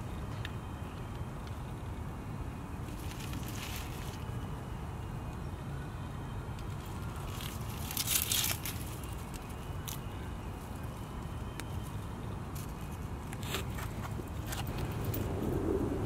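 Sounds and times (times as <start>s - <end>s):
dry stalks crackling and rustling: 2.7s - 5.5s, 6.5s - 16.0s
low rumble: 14.7s - 16.0s.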